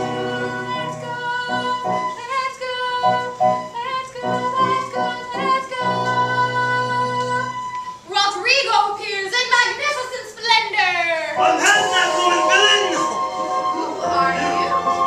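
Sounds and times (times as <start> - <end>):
musical theatre singing: 0.0 - 7.8, 11.3 - 15.0
instrumental accompaniment: 11.4 - 15.0.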